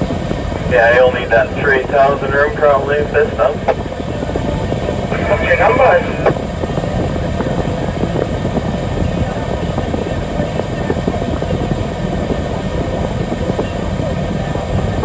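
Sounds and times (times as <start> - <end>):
vehicle engine rumbling: 0.0 - 15.0.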